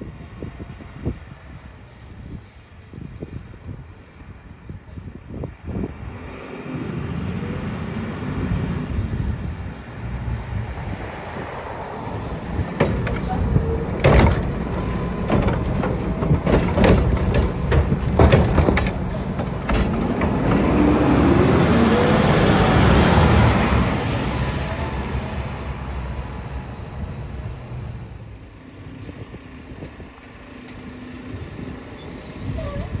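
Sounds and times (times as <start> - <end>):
garbage truck engine: 6.0 - 33.0
cart knocking and banging: 12.8 - 20.9.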